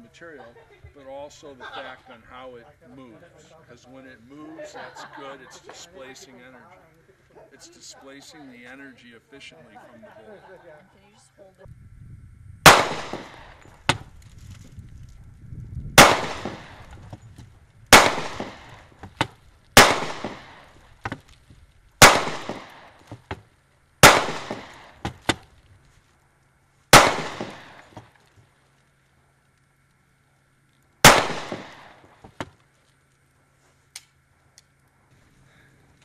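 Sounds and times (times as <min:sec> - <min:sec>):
gunshots with echo: 0:12.7 - 0:14.0, 0:16.0 - 0:16.9, 0:17.9 - 0:18.8, 0:19.8 - 0:20.7, 0:22.0 - 0:22.9, 0:24.0 - 0:24.9, 0:27.0 - 0:27.9, 0:31.0 - 0:32.0
faint sharp cracks: 0:12.7 - 0:15.2, 0:16.0 - 0:36.0.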